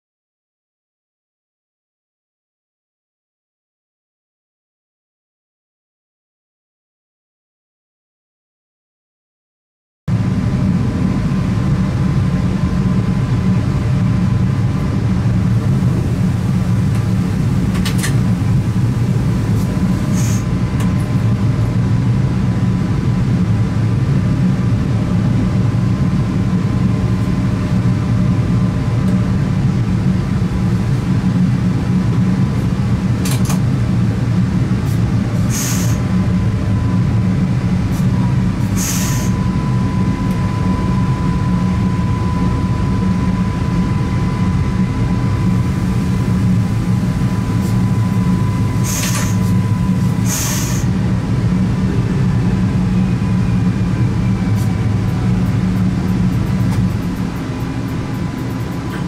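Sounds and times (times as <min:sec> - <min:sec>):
train low rumble: 0:10.1 - 0:59.0
short air hisses: 0:20.1 - 0:20.5, 0:35.5 - 0:36.0, 0:38.7 - 0:39.4, 0:48.8 - 0:49.5, 0:50.2 - 0:50.9.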